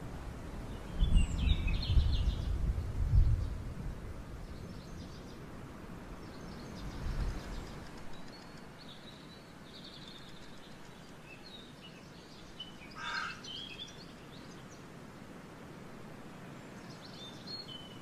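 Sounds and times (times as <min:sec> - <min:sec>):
outdoor background hiss: 0:00.0 - 0:18.0
small birds chirping: 0:00.7 - 0:03.6, 0:06.1 - 0:15.0, 0:16.4 - 0:18.0.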